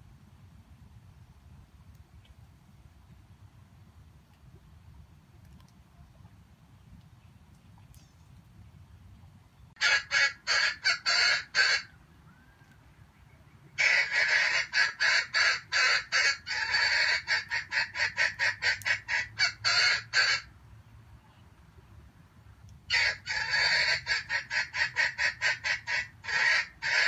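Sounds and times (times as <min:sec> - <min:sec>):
junglefowl cackling: 0:09.8 - 0:12.8, 0:13.7 - 0:20.5, 0:22.9 - 0:27.0.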